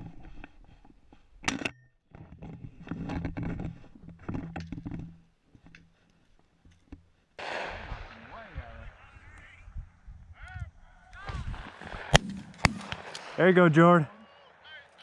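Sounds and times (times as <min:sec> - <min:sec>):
shotgun shot ringing: 0:07.4 - 0:08.2, 0:12.0 - 0:13.4
sharp crack: 0:07.4 - 0:08.7, 0:11.2 - 0:13.6.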